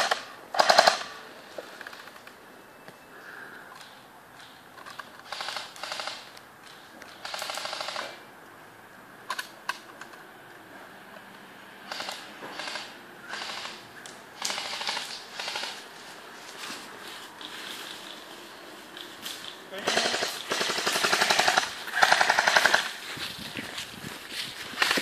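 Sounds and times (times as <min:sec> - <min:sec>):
airsoft gun full-auto bursts: 0:00.0 - 0:01.1, 0:05.2 - 0:06.3, 0:07.2 - 0:08.2, 0:11.9 - 0:13.8, 0:14.4 - 0:15.9, 0:19.8 - 0:23.0.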